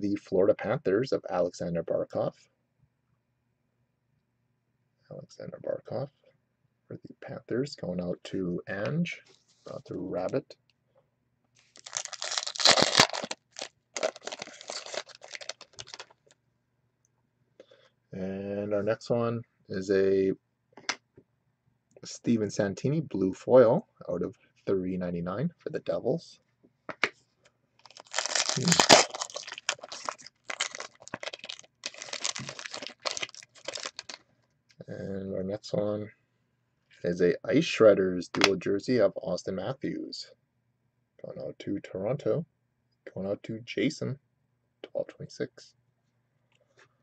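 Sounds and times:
foil wrapper tearing and crinkling: 0:11.6 - 0:16.1, 0:27.8 - 0:34.2.

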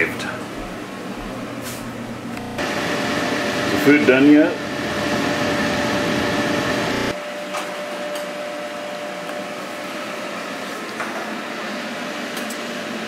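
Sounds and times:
fan-like hum: 0:00.0 - 0:13.0.

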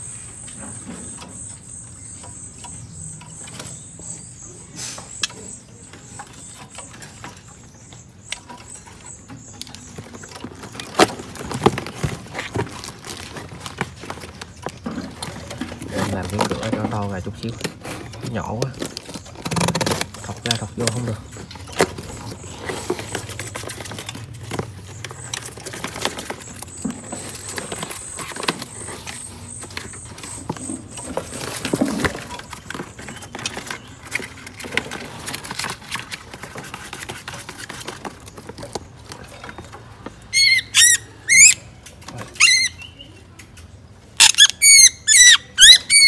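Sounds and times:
clicks and rustling at bird cage: 0:00.4 - 0:44.8
bird squealing distress calls: 0:40.4 - 0:41.6, 0:44.2 - 0:46.0.

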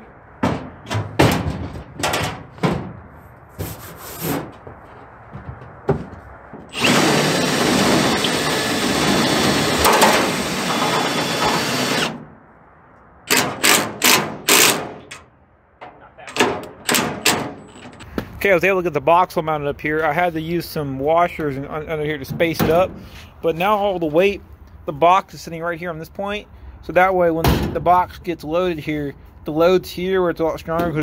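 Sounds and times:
impact driver driving bolts: 0:06.7 - 0:12.2, 0:13.3 - 0:15.2, 0:16.3 - 0:18.0.

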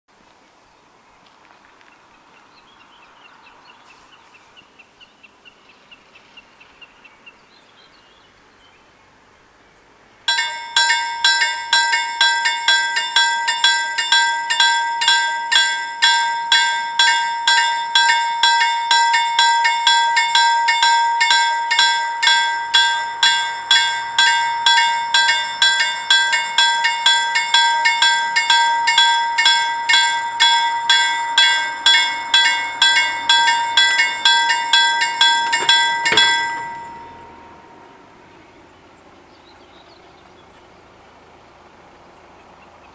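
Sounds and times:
level crossing warning bells: 0:10.3 - 0:38.4.

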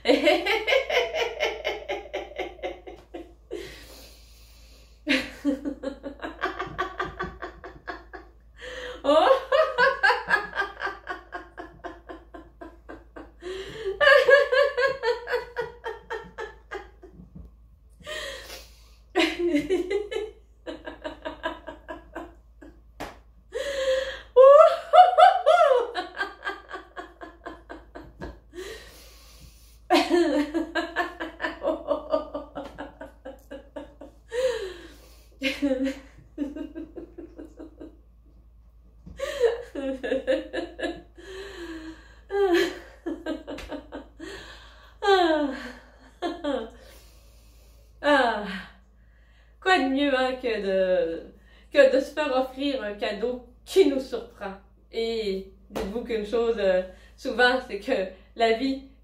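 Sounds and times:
woman laughing: 0:00.0 - 0:04.0, 0:05.1 - 0:17.2, 0:19.2 - 0:22.8, 0:23.6 - 0:28.8, 0:29.9 - 0:37.9, 0:39.1 - 0:46.7
sharp inhalations: 0:03.6 - 0:05.1, 0:18.1 - 0:19.1, 0:28.6 - 0:29.9, 0:34.5 - 0:35.4, 0:46.8 - 0:48.0.

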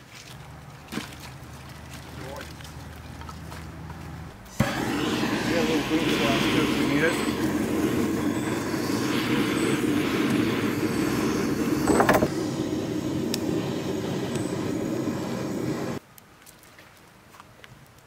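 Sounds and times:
propane torch hissing: 0:04.5 - 0:16.0.

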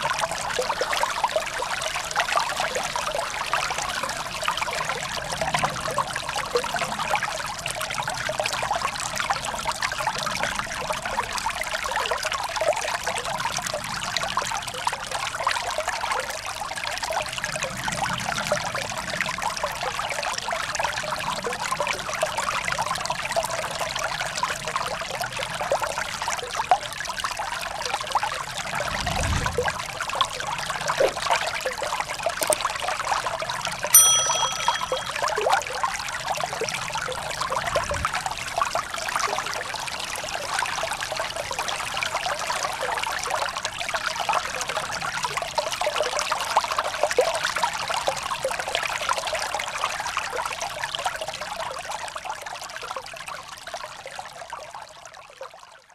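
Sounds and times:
short electronic chime: 0:34.0 - 0:35.2.

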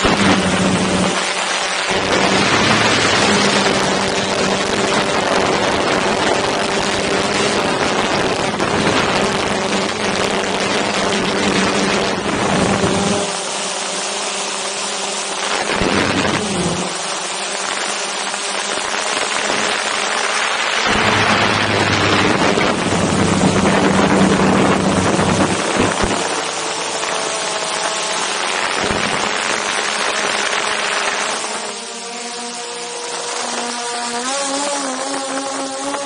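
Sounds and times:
wind rushing over microphone: 0:00.0 - 0:32.2
drone propellers whirring: 0:00.0 - 0:36.0.

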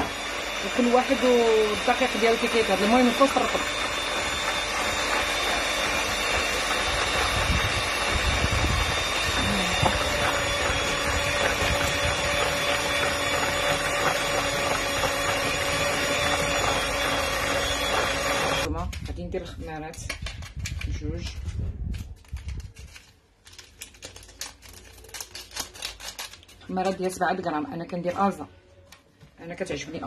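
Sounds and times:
electric hand mixer whine: 0:00.0 - 0:18.7.

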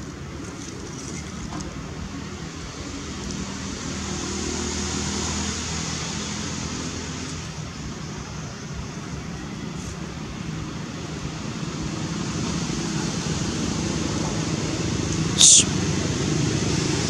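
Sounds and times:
vehicle engine passing: 0:03.1 - 0:08.0.

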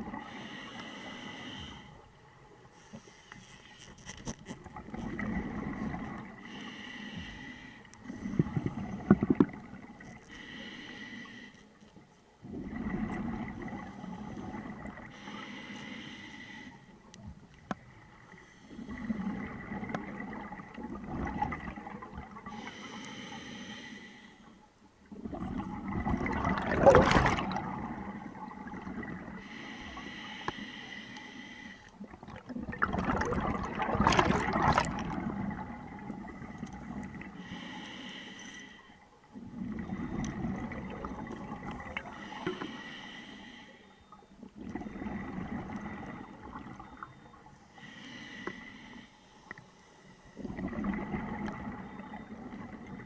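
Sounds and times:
regulator hissing inhale: 0:00.2 - 0:02.0, 0:06.4 - 0:08.4, 0:10.3 - 0:11.8, 0:15.1 - 0:17.0, 0:22.5 - 0:24.6, 0:29.4 - 0:32.0, 0:37.4 - 0:39.0, 0:42.1 - 0:44.1, 0:47.6 - 0:50.4
bubbling exhale underwater: 0:25.2 - 0:29.4, 0:32.0 - 0:37.4, 0:39.5 - 0:42.5.

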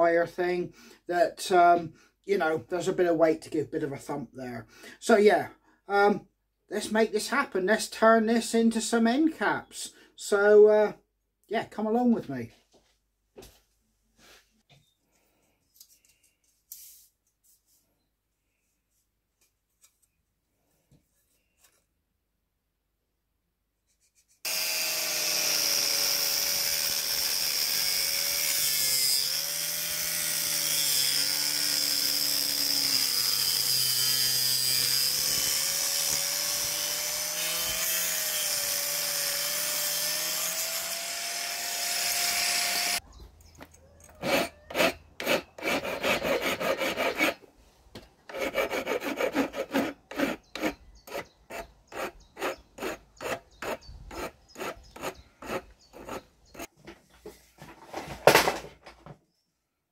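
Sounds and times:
angle grinder cutting pipe: 0:24.5 - 0:43.0, 0:44.2 - 0:47.4, 0:48.3 - 0:56.7
hand file rasping on metal: 0:44.2 - 0:47.4, 0:48.3 - 0:56.7.

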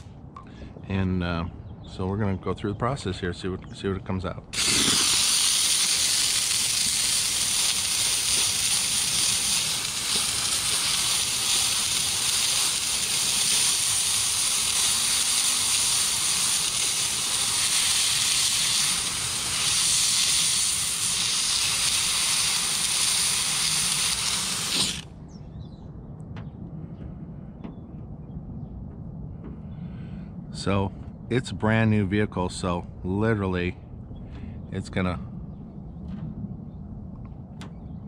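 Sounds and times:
steam cleaner hissing: 0:04.6 - 0:25.0.

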